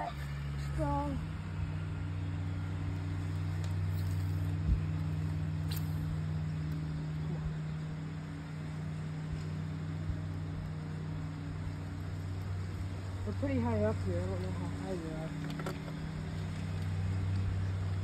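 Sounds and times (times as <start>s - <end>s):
low motor hum: 0.0s - 18.0s.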